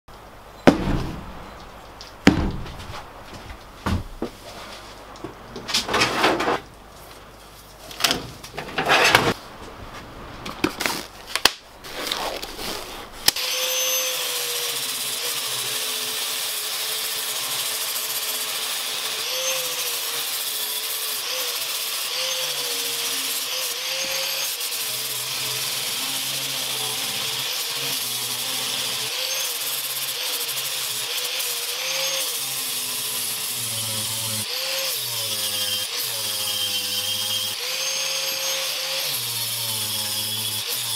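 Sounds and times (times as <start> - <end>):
angle grinder grinding steel: 13.3 - 40.9.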